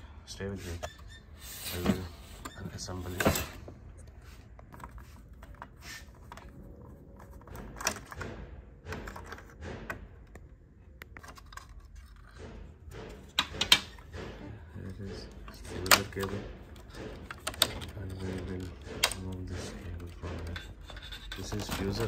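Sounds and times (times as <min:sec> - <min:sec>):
screwdriver clicks and knocks: 0:08.9 - 0:14.2, 0:16.8 - 0:18.0.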